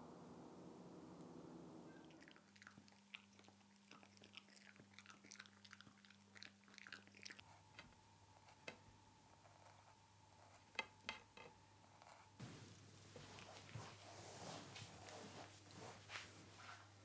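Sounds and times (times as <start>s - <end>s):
dog gnawing chew stick: 2.1s - 7.5s.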